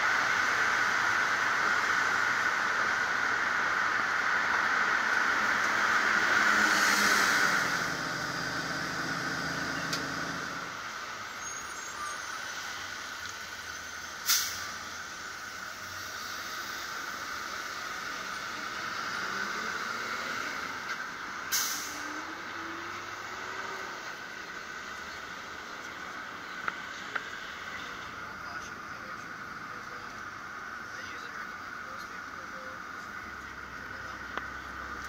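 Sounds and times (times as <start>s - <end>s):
short sharp hisses: 14.2s - 14.8s, 21.5s - 22.0s.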